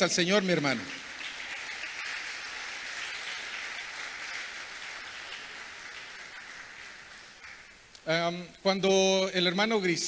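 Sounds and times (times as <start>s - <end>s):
congregation applauding: 0.0s - 7.9s.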